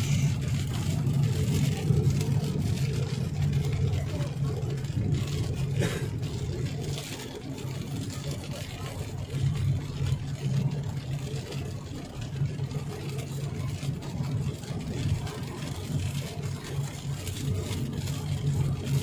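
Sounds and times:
car engine and road drone: 0:00.0 - 0:19.0.

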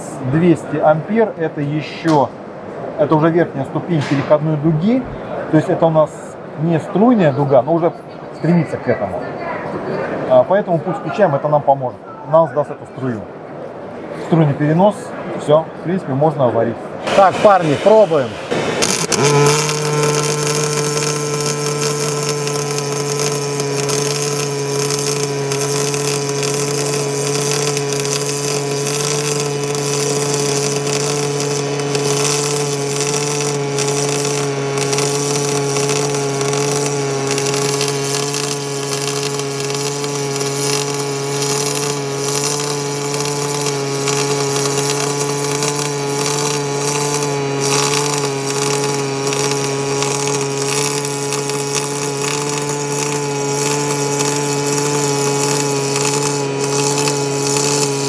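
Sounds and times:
welding arc buzzing: 0:17.0 - 0:58.0
welding arc hissing: 0:17.0 - 0:58.0.

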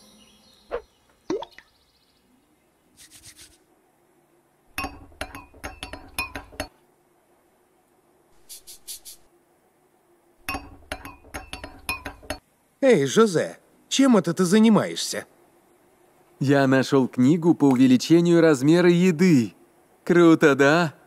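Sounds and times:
faint high-pitched hissing: 0:00.0 - 0:21.0
spoon clinking against glass: 0:04.8 - 0:06.8, 0:10.4 - 0:12.4.

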